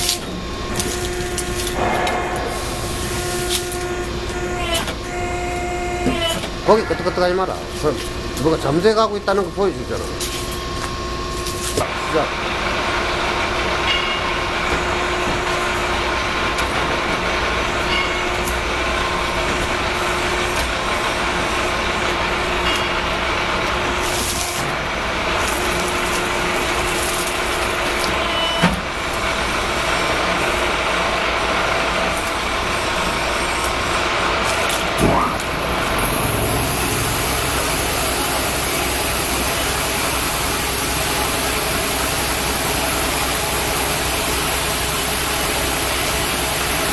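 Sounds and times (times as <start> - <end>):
rising whine: 0.0 - 13.2, 34.6 - 41.4
hydraulic power unit running: 0.0 - 46.9
sharp knock: 1.8 - 3.6.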